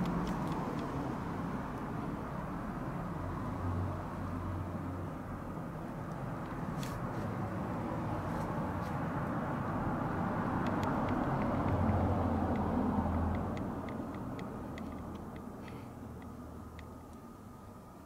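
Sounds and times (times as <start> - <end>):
faint sharp ticks: 10.6 - 17.2.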